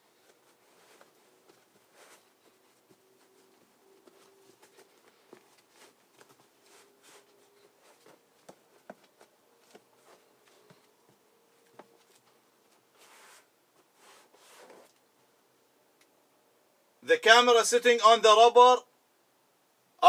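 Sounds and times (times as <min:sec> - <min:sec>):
brushing: 0:00.0 - 0:10.8, 0:11.9 - 0:15.0
gloved hands rustling and scuffing: 0:00.0 - 0:15.0.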